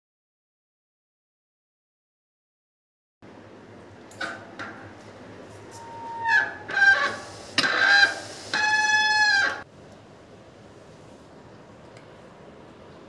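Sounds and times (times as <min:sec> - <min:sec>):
bicycle disc brake squealing: 0:05.7 - 0:09.6.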